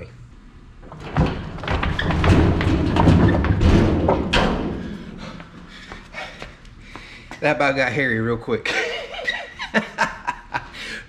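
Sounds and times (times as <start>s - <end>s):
cart wheels rumbling on boards: 0.9s - 5.3s.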